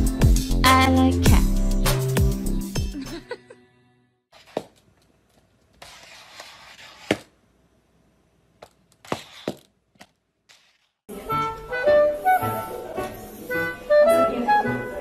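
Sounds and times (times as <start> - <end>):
plastic cup scraping on floor: 4.3 - 4.8, 5.8 - 7.3, 9.0 - 9.7, 10.5 - 10.9.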